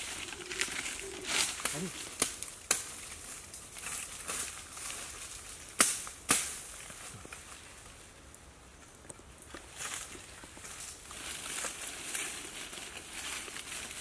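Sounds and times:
rustling through undergrowth: 0.0s - 14.0s
sharp woody cracks: 5.8s - 6.7s.

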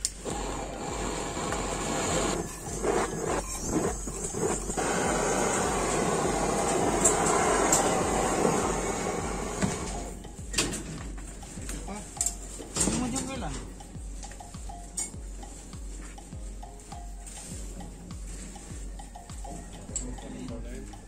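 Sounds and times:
gas torch hissing: 0.0s - 10.4s.

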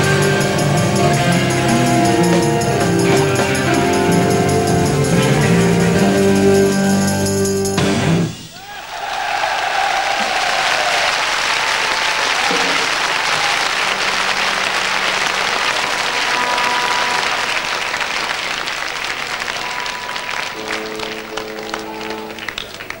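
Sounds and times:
audience applauding and cheering: 0.0s - 7.8s, 8.5s - 23.0s
held instrument notes ringing: 0.0s - 7.8s, 13.8s - 22.4s.

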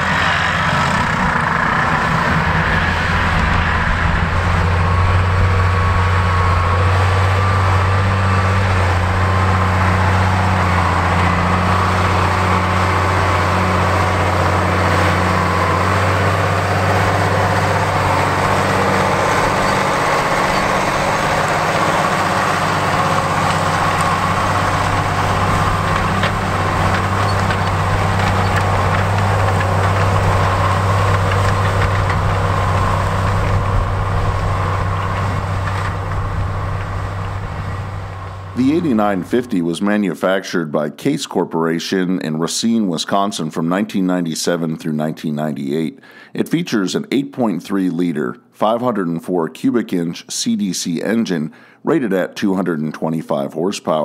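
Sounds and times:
tractor diesel engine droning: 0.0s - 41.2s.

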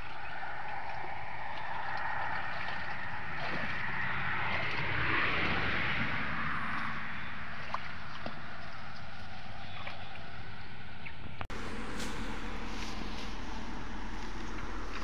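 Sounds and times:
muddy water sloshing: 0.0s - 15.0s
steady rushing noise: 11.5s - 15.0s.

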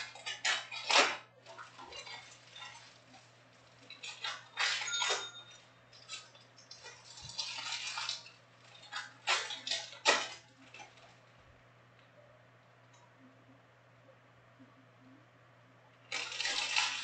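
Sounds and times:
foil card packs crinkling: 0.0s - 5.2s, 5.9s - 11.2s, 16.1s - 17.0s.

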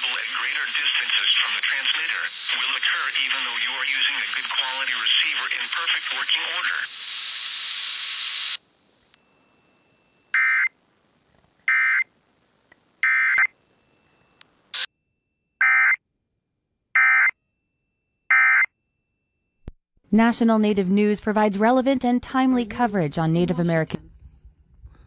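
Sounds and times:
digital data bursts from radio: 0.0s - 8.6s
static hiss: 0.0s - 8.7s.

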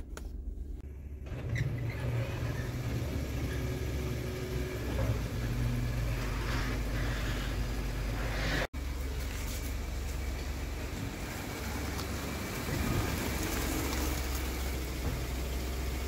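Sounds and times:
garage door rolling open: 1.1s - 8.2s.

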